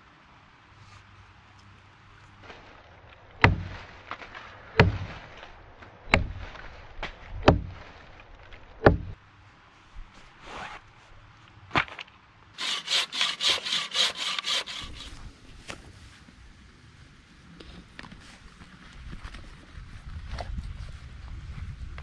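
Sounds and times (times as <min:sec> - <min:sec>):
hatchet chopping log: 0:03.4 - 0:03.8, 0:04.8 - 0:05.1, 0:06.1 - 0:06.4, 0:07.4 - 0:07.8, 0:08.8 - 0:09.2.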